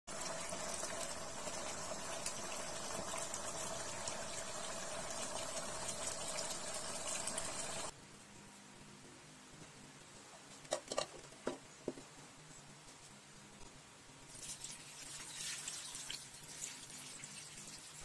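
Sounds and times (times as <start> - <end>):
sauce bubbling in a pan: 0.1 - 7.9, 14.3 - 18.0.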